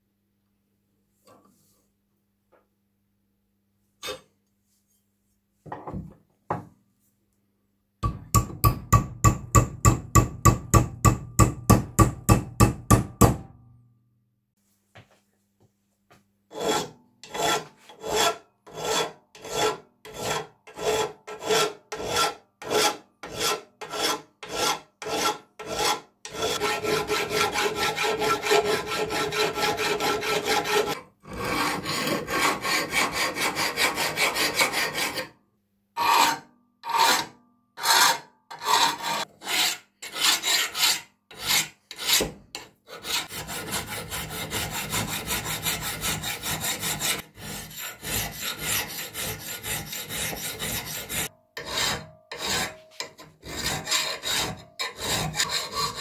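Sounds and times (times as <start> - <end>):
file rasping on steel: 16.5 - 35.4, 36.0 - 56.0.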